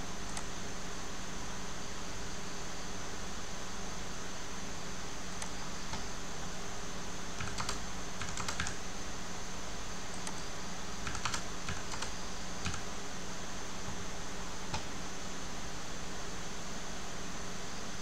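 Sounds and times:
keyboard typing: 0:07.4 - 0:08.8, 0:10.1 - 0:10.4, 0:11.0 - 0:12.9.

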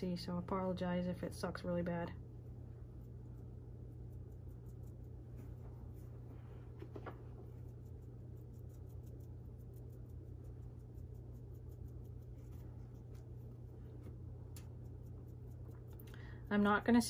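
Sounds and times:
steady low hum: 0:00.0 - 0:17.0
sponge dabbing and rubbing: 0:02.8 - 0:15.9.

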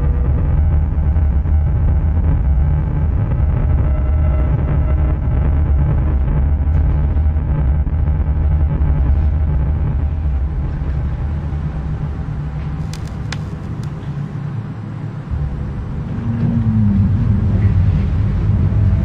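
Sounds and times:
faint steady hum: 0:00.0 - 0:19.0
low rumbling drone: 0:00.0 - 0:19.0
sharp clicks: 0:12.8 - 0:14.0.

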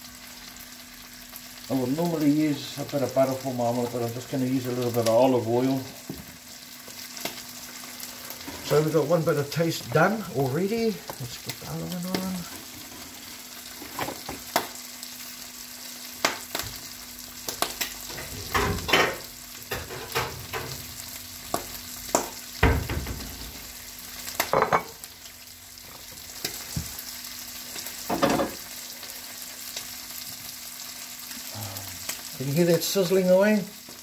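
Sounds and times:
bacon sizzling in a frying pan: 0:00.0 - 0:34.0
clunks of pans and utensils: 0:13.8 - 0:14.6, 0:18.1 - 0:20.9, 0:21.5 - 0:23.6, 0:24.4 - 0:25.0, 0:28.0 - 0:28.6.

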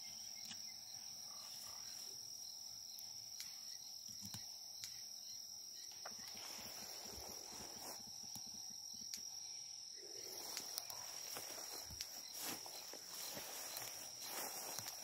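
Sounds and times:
high insect trill: 0:00.0 - 0:15.0
footsteps crunching through dry grass: 0:06.1 - 0:08.3, 0:10.2 - 0:15.0.

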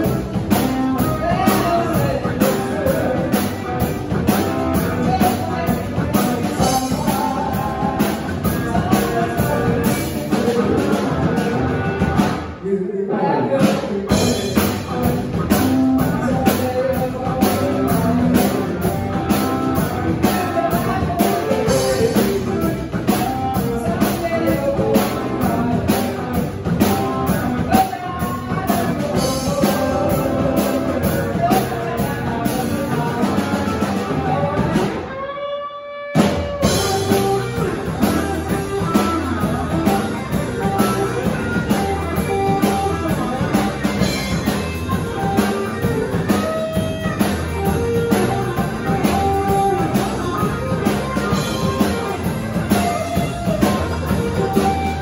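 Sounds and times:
woman singing: 0:00.0 - 0:11.4, 0:16.0 - 0:35.0
drum kit: 0:00.0 - 0:12.7, 0:13.4 - 0:55.0
bass guitar: 0:00.0 - 0:55.0
electric guitar: 0:00.0 - 0:55.0.

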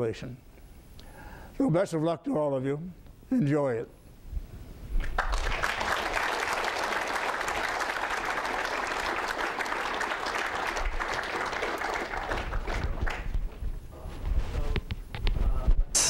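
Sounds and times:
audience applauding: 0:05.0 - 0:13.4.

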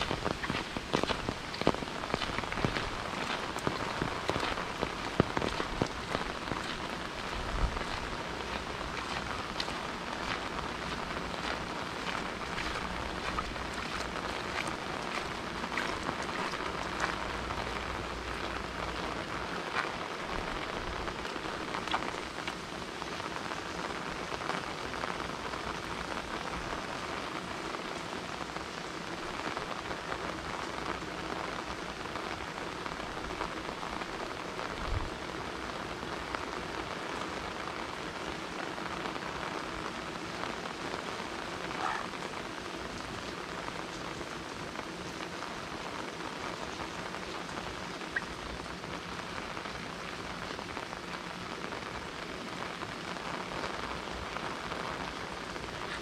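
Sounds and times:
rain on hard surfaces: 0:00.0 - 0:56.0.

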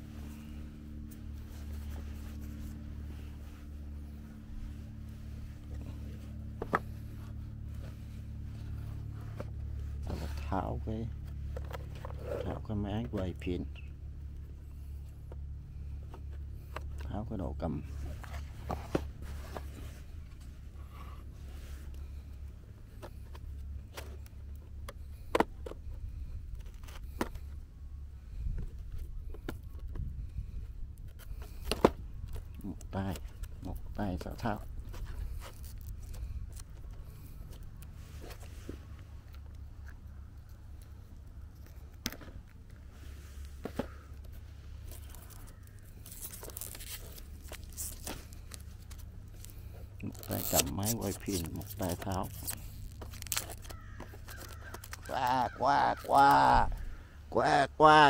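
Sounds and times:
steady low rumble: 0:00.0 - 0:57.8
plastic wrap crinkling and tearing: 0:35.4 - 0:36.7, 0:44.9 - 0:56.1.

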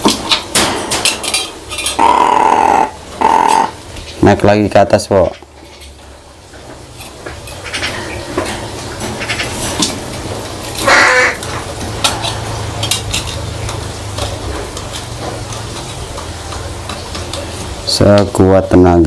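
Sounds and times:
crow cawing: 0:02.0 - 0:03.8, 0:10.8 - 0:11.5.

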